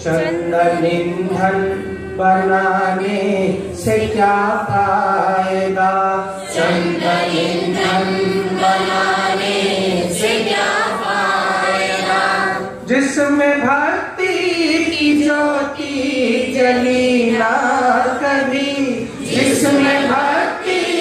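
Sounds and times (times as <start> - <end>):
man chanting a hymn: 0.0 - 8.5.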